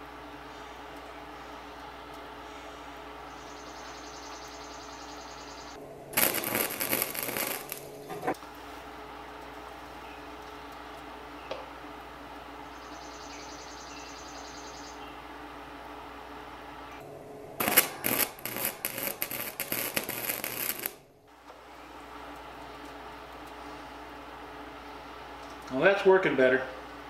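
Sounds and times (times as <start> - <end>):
low electrical hum: 0.0 - 27.0
welding arc crackling: 6.1 - 8.4, 17.6 - 21.1.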